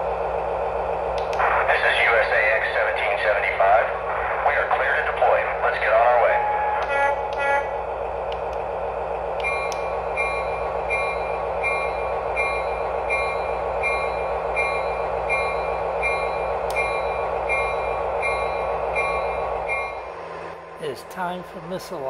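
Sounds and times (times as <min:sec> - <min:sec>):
diesel engine rumble: 0:00.0 - 0:22.0
locomotive bell ringing: 0:09.4 - 0:22.0.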